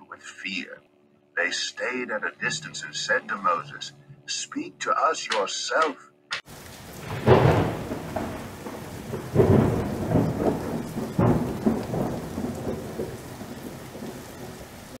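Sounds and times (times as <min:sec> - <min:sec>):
steady rain: 0:06.4 - 0:15.0
thunder rolling: 0:06.5 - 0:15.0
sharp thunder crack: 0:06.8 - 0:14.7.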